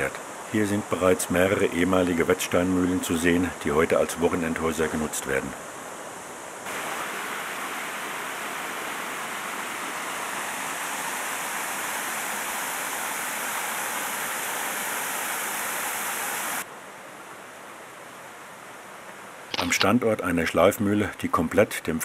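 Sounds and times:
creek water rushing over weirs: 0:06.7 - 0:16.7.

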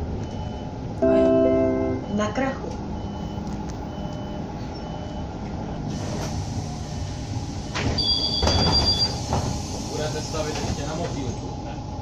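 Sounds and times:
bus engine and road rumble: 0:00.0 - 0:12.0
two-tone brake squeal: 0:08.0 - 0:09.2.

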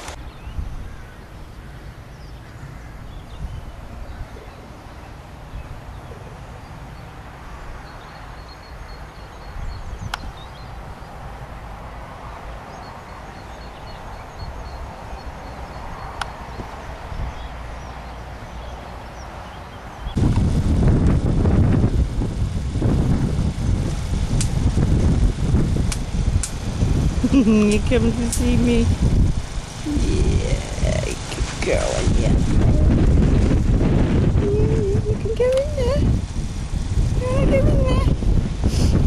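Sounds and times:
wind buffeting microphone: 0:00.0 - 0:39.0
sharp clicks: 0:23.8 - 0:24.6, 0:25.9 - 0:26.6.

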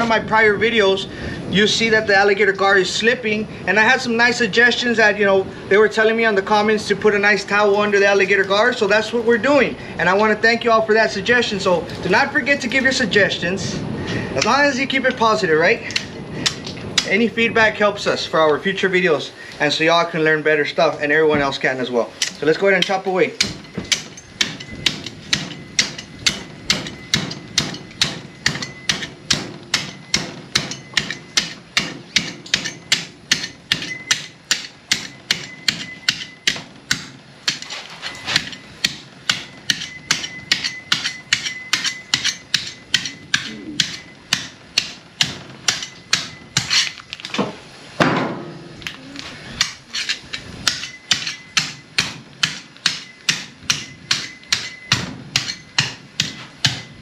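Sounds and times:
cleaver chopping through scales: 0:15.8 - 0:17.2, 0:22.2 - 0:47.4, 0:49.6 - 0:57.0.

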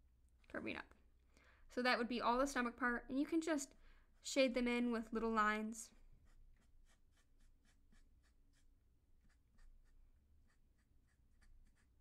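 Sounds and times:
marker scratching on paper: 0:06.2 - 0:12.0.

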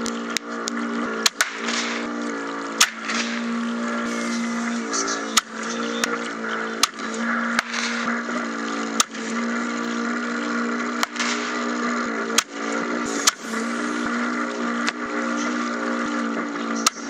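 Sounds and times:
model boat motor humming: 0:00.0 - 0:17.0
sharp short bangs: 0:02.8 - 0:05.8.

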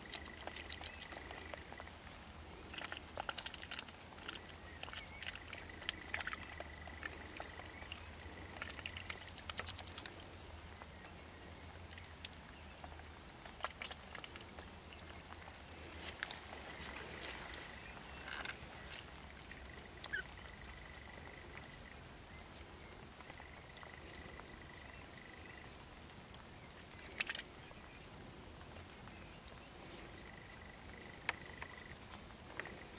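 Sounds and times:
duck bill clicking in water: 0:00.0 - 0:01.9, 0:02.5 - 0:10.2, 0:11.9 - 0:16.9, 0:27.0 - 0:27.6
duck splashing in shallow water: 0:00.0 - 0:22.1, 0:27.0 - 0:27.6.

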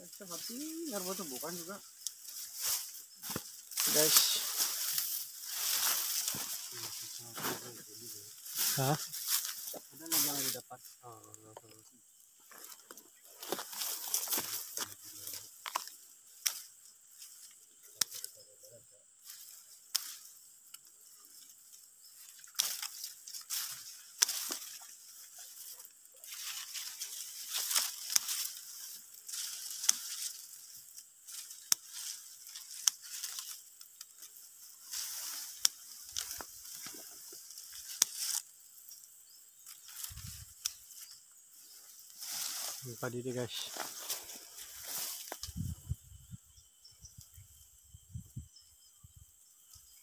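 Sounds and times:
dry rice stalks rustling: 0:00.0 - 0:18.4, 0:19.2 - 0:47.7
scissors snipping stalks: 0:19.8 - 0:20.2, 0:22.4 - 0:24.8, 0:31.3 - 0:34.2, 0:35.5 - 0:36.9, 0:37.7 - 0:38.4.

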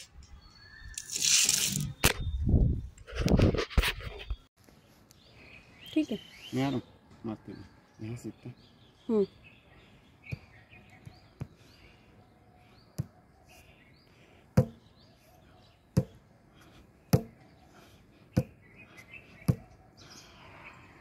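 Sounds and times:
bird chirps: 0:00.2 - 0:02.8, 0:05.1 - 0:16.2.

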